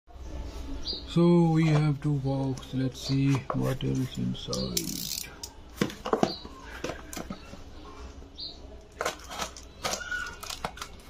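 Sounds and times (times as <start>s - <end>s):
cardboard parcel rustling: 8.9s - 11.0s.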